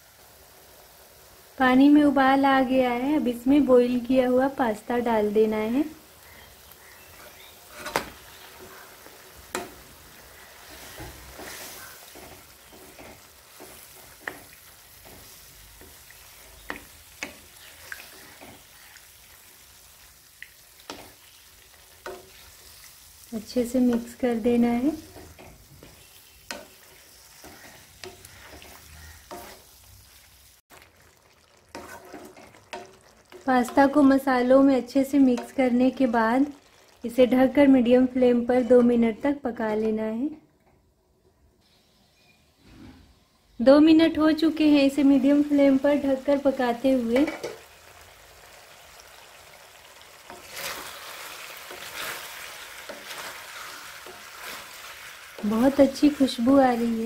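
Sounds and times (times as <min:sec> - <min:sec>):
faint sizzle: 0:00.0 - 0:40.5, 0:41.2 - 0:57.0
spatula stirring pasta in sauce: 0:06.8 - 0:34.4, 0:49.9 - 0:57.0
spatula knocking and scraping pan: 0:07.2 - 0:08.8, 0:09.5 - 0:09.8, 0:10.7 - 0:18.6, 0:24.9 - 0:29.7, 0:31.7 - 0:34.1, 0:47.1 - 0:47.6.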